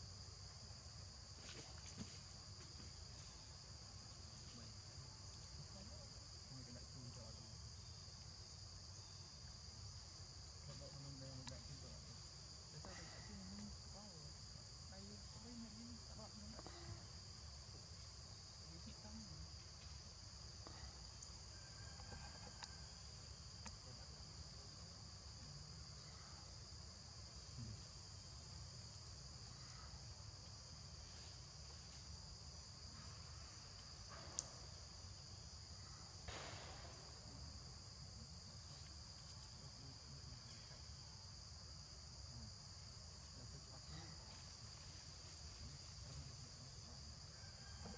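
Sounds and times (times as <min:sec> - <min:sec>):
high-pitched insect chorus: 0:00.0 - 0:47.9
sharp click: 0:34.2 - 0:34.6.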